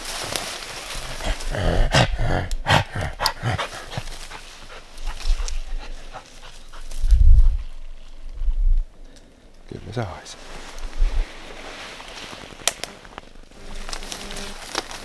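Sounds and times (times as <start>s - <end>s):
rustling in undergrowth: 0.0s - 1.9s, 3.4s - 15.0s
dog panting and whimpering: 3.1s - 7.6s.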